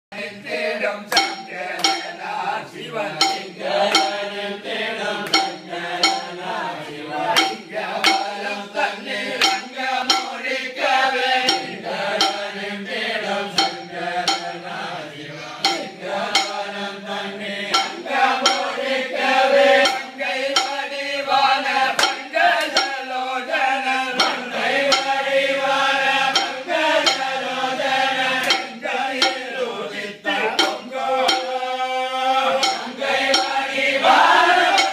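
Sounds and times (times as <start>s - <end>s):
men singing together: 0.1s - 34.9s
metallic clinks keeping time: 1.1s - 2.2s, 3.2s - 4.4s, 5.2s - 6.4s, 7.4s - 8.4s, 9.4s - 10.6s, 11.5s - 12.6s, 13.5s - 14.7s, 15.6s - 16.8s, 17.7s - 19.0s, 19.8s - 21.0s, 22.0s - 23.1s, 24.2s - 25.3s, 26.3s - 27.5s, 28.4s - 29.5s, 30.5s - 31.8s, 32.6s - 34.9s.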